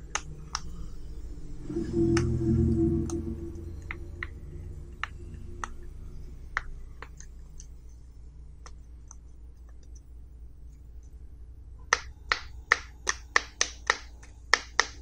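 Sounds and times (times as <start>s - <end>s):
low rumble: 0.0s - 8.6s
low steady hum: 0.0s - 15.0s.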